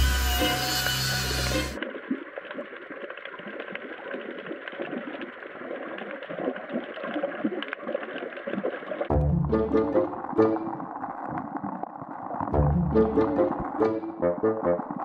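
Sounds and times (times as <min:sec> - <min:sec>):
watery noise: 0:00.0 - 0:15.0
underwater crackle of clicks: 0:01.8 - 0:09.0.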